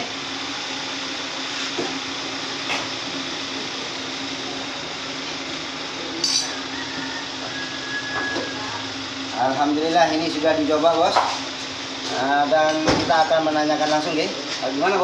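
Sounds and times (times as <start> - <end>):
workshop hum: 0.0 - 15.0.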